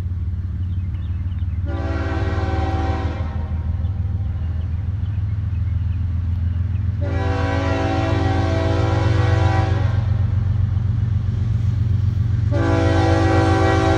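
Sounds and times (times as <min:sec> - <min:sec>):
low locomotive rumble: 0:00.0 - 0:13.9
train air horn blasts: 0:01.6 - 0:03.9, 0:07.0 - 0:10.5, 0:12.3 - 0:13.9.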